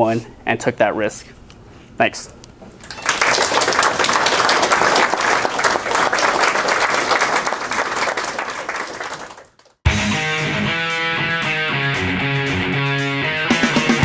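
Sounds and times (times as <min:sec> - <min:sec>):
audience applauding: 0:02.8 - 0:09.8
music: 0:09.9 - 0:14.0.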